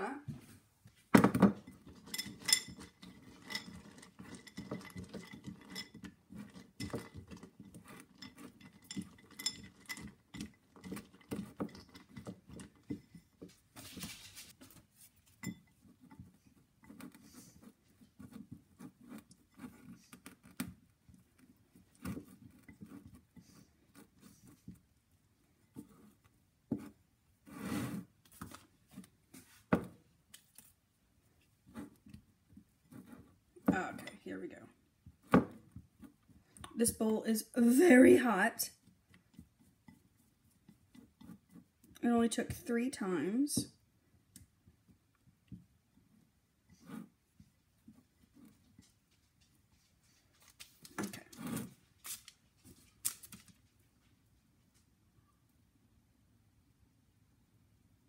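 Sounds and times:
spatula scraping glass bowl: 1.6 - 20.6.

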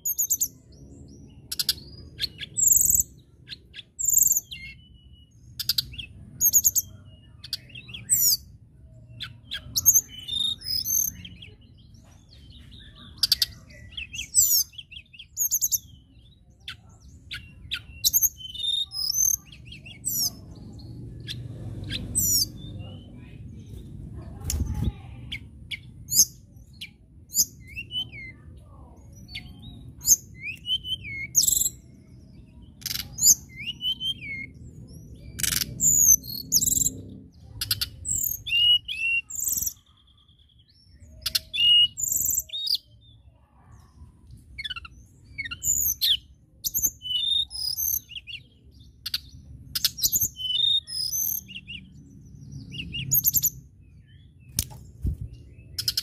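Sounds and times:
bird singing high whistles: 30.0 - 31.7.

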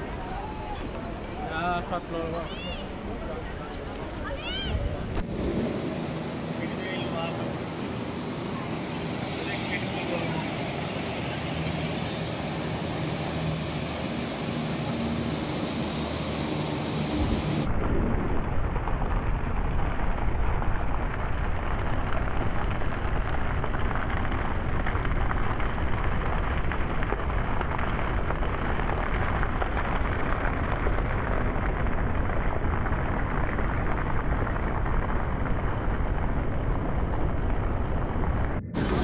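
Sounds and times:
deep low rumble: 4.4 - 39.0.

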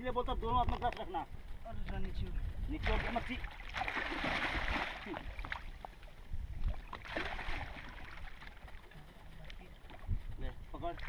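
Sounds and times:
water splashing: 2.8 - 11.0.

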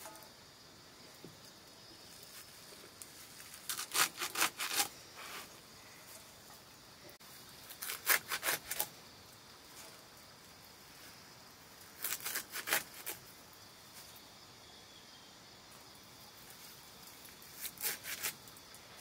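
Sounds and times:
knife chopping leaves on wood: 3.4 - 4.9, 7.8 - 8.9, 12.0 - 13.2.

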